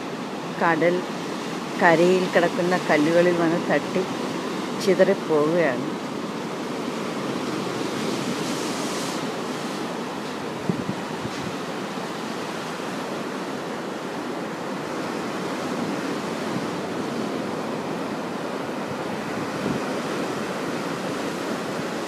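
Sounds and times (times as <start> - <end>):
sea surf breaking on rocks: 0.0 - 22.0
wind buffeting microphone: 6.3 - 22.0.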